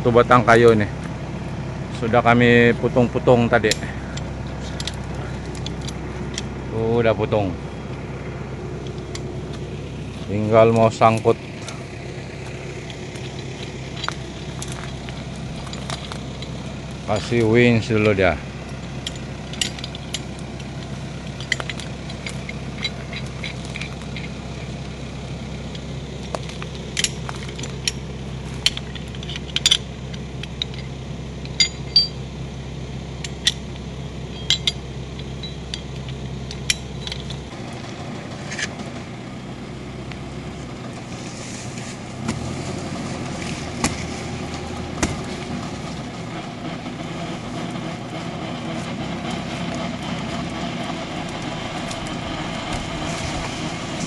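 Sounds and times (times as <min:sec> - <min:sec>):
diesel engine idling: 0:00.0 - 0:54.0
metal clinks and scrapes of shackle: 0:03.7 - 0:06.5, 0:11.0 - 0:24.9, 0:25.7 - 0:32.2, 0:34.3 - 0:37.6.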